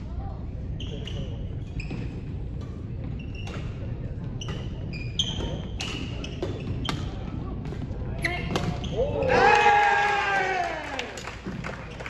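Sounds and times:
low hum of large hall: 0.0s - 12.0s
shoes squeaking on gym floor: 0.8s - 7.3s.

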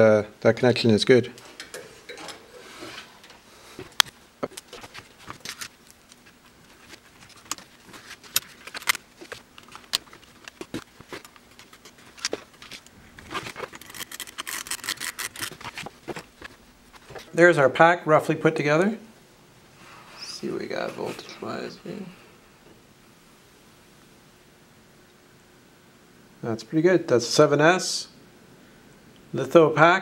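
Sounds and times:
foil crinkling: 4.5s - 17.2s.

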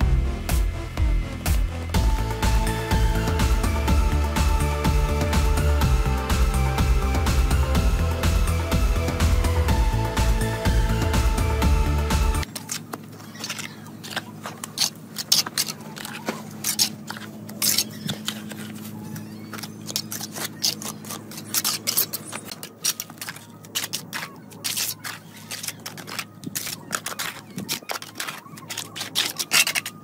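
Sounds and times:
trowel scraping mortar: 12.4s - 30.0s
bricks scraping and knocking: 19.5s - 30.0s.

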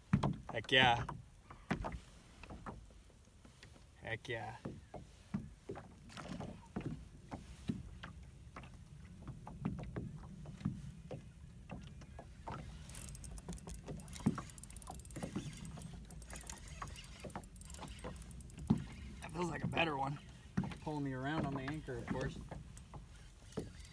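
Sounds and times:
knocks and taps in boat: 0.0s - 23.9s
fishing reel ticking: 12.5s - 23.9s.

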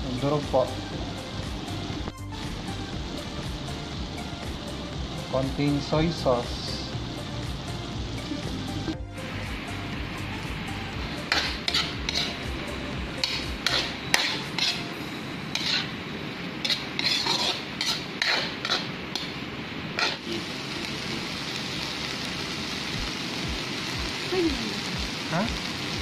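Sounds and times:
frying sizzle: 0.0s - 26.0s
spatula scraping a wok: 11.1s - 12.5s, 13.2s - 20.4s.

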